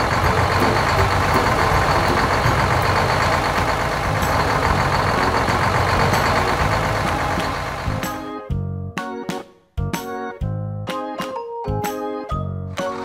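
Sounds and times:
diesel truck engine running: 0.0 - 8.3.

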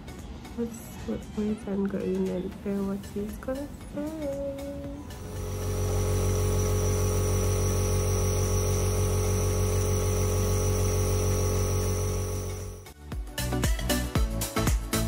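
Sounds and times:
nebulizer compressor humming: 5.0 - 12.9
air hissing: 5.2 - 12.9.

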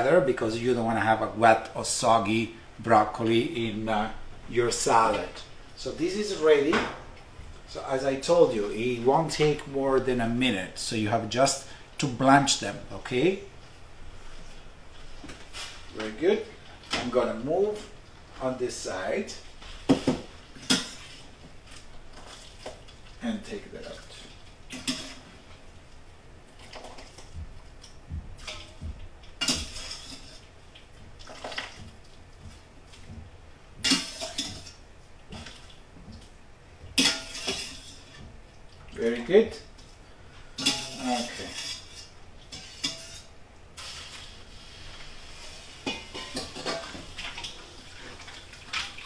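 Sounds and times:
dishes and utensils clinking: 29.4 - 30.4, 33.8 - 35.5, 37.0 - 38.2, 40.6 - 43.3, 45.8 - 47.6
metal utensil clinking against pot: 40.6 - 43.3.

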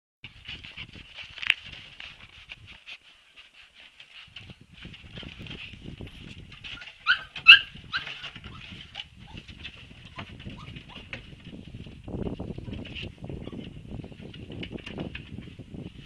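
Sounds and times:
low scuffling: 0.3 - 16.0
puppies whining: 6.7 - 9.5, 10.1 - 11.2
puppy yelps: 6.8 - 8.7.

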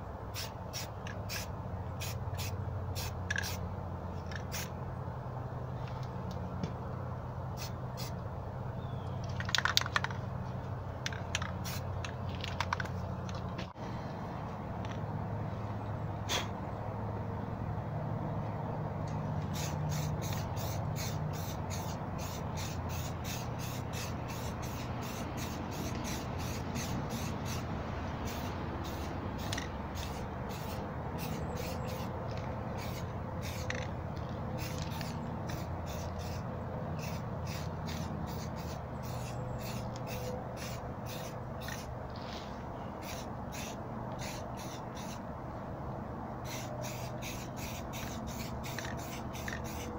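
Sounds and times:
spray paint can hissing bursts: 0.3 - 3.6, 4.3 - 4.7, 11.1 - 11.9, 19.4 - 32.1, 32.7 - 33.9, 34.6 - 36.4, 37.0 - 42.3, 43.0 - 45.2, 46.4 - 49.9.

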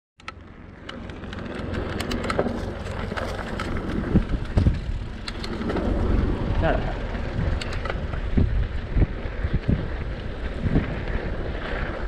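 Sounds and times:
sharp rattling clicks: 0.2 - 5.9, 7.5 - 8.2
bike tyres rolling rumble: 0.2 - 12.0.

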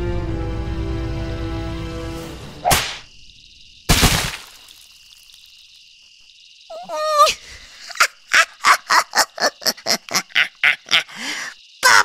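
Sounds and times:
night insects chirring: 0.7 - 12.0
rising vocal cry: 6.7 - 7.4.

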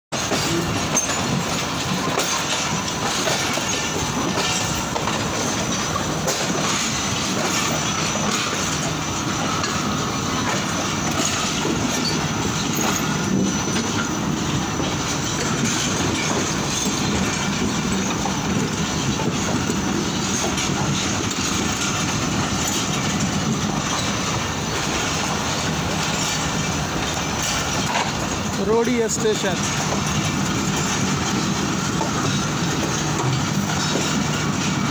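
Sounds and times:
train wheels on rails: 0.1 - 34.9.

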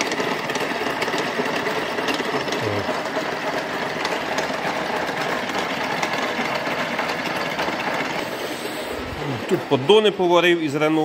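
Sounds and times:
milling machine cutting metal: 0.0 - 8.8.

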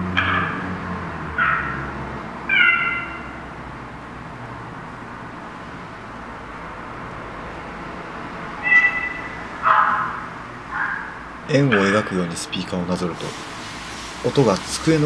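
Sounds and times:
high-pitched calls from small speakers: 2.5 - 3.3, 8.6 - 10.2.

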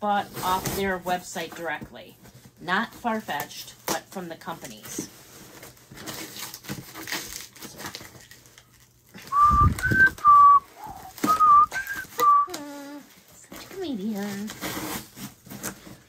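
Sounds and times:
packing tape peeled off cardboard: 5.3 - 16.0
whistled tune: 9.3 - 12.6.

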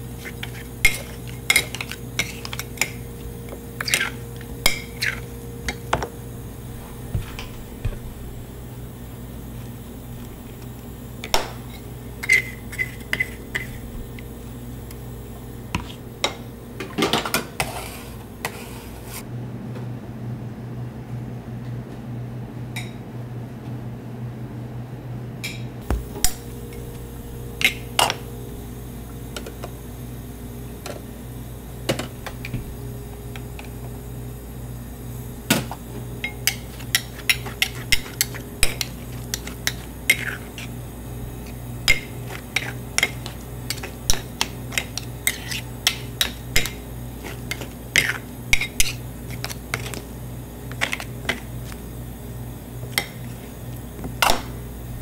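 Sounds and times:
steady low hum: 0.0 - 55.0
metal spades scraping on stone: 0.2 - 3.1, 3.8 - 5.8, 11.6 - 13.8, 36.2 - 40.8, 41.4 - 50.0.

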